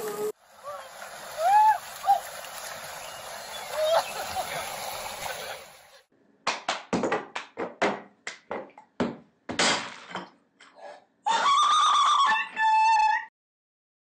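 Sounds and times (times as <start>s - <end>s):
rhythmic hand claps and taps: 6.4s - 9.2s.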